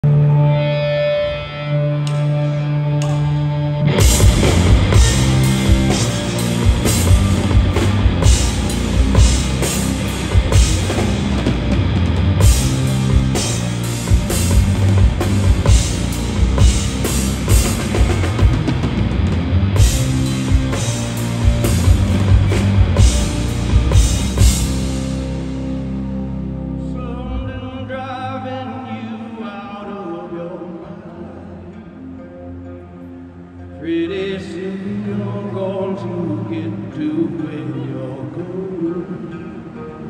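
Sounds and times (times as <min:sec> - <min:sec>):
live rock band playing: 0:00.0 - 0:27.2
driving drum kit: 0:03.9 - 0:25.8.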